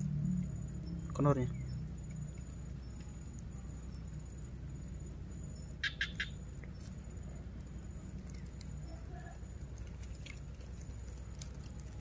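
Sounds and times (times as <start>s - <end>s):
small clicks and rustles: 6.6s - 12.0s.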